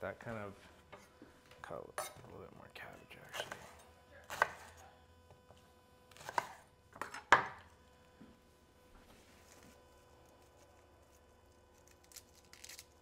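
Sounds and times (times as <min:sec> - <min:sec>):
knife chopping on cutting board: 0:04.3 - 0:04.8, 0:06.2 - 0:07.6.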